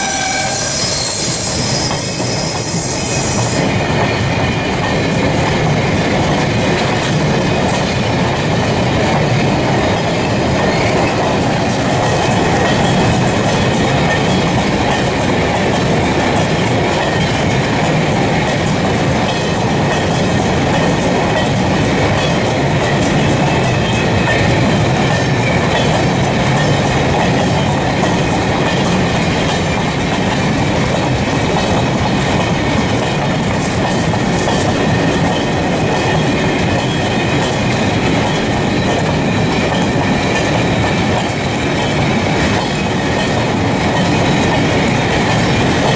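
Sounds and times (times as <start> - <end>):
freight train rumbling past: 0.0 - 45.9
wheels clattering on rails: 0.0 - 45.9.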